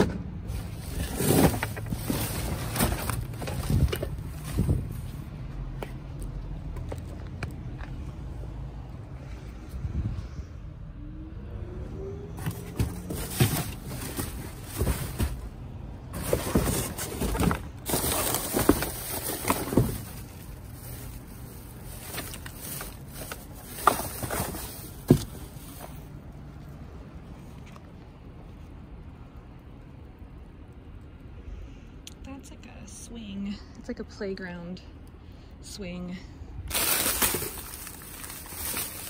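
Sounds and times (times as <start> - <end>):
knocks clunks and rustles: 0.0 - 5.2, 12.4 - 21.1, 21.9 - 26.0.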